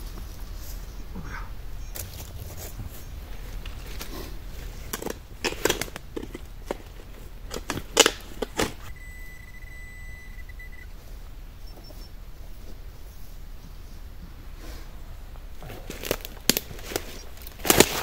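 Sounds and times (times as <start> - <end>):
metal detector high-pitched tone: 8.9 - 11.0.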